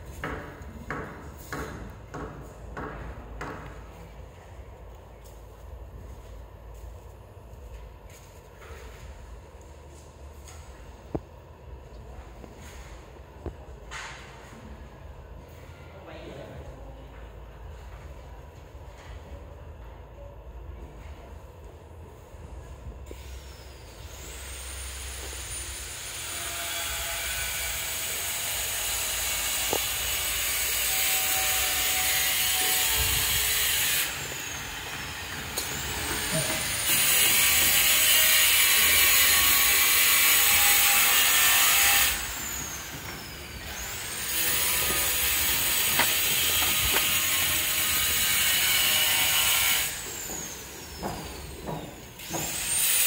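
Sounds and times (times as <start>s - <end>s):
handheld power tool running: 24.1s - 53.0s.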